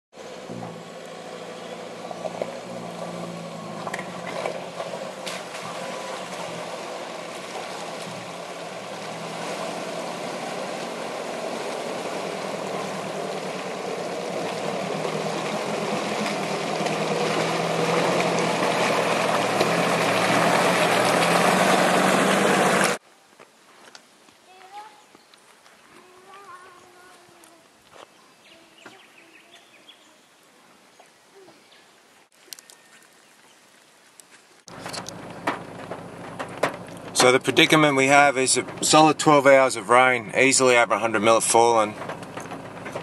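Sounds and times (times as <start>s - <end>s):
truck engine running: 0.2s - 23.0s, 34.7s - 43.0s
water rushing and sloshing: 0.2s - 23.0s, 33.2s - 43.0s.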